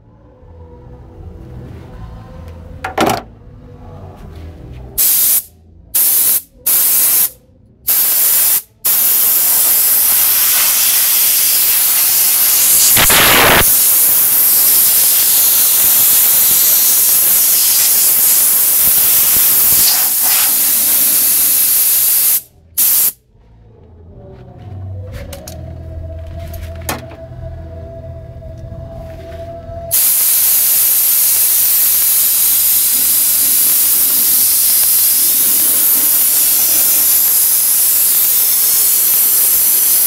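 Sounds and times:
compressed air hissing: 0:05.0 - 0:23.2, 0:29.9 - 0:40.0.

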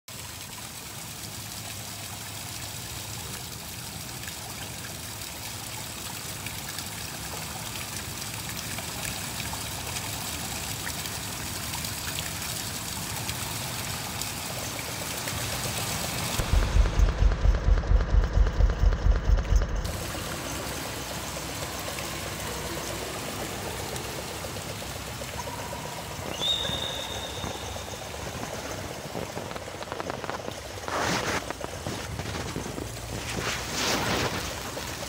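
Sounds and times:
rain hissing: 0:12.6 - 0:35.0
low regular pulsing: 0:16.3 - 0:26.3.

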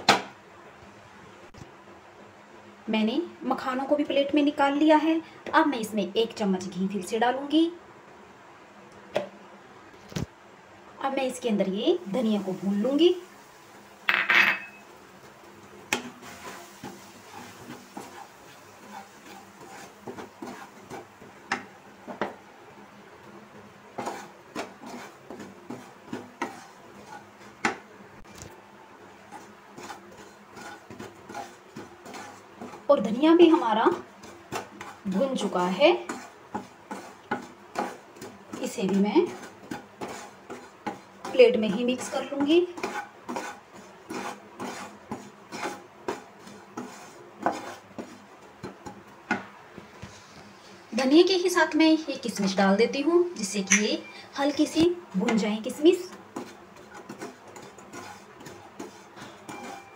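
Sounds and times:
spatula scraping and knocking pan: 0:14.0 - 0:28.3, 0:29.0 - 0:51.6, 0:52.2 - 0:59.9.

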